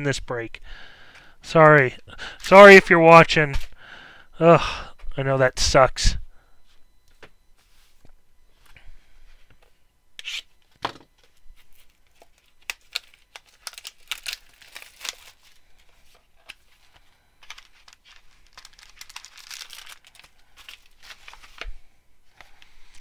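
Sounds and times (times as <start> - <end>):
foil wrapper crinkling: 11.7 - 16.6, 17.4 - 21.7.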